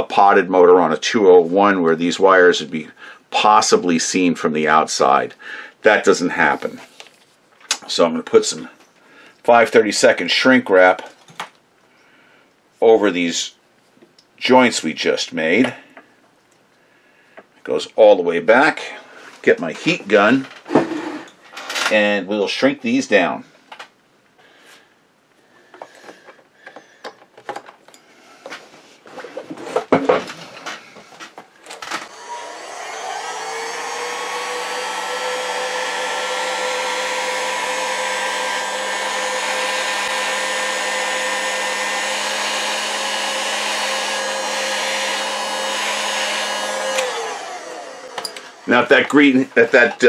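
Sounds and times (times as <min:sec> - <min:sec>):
clicks and knocks of handling: 0:25.7 - 0:32.0
heat gun fan blowing with whine: 0:31.8 - 0:49.9.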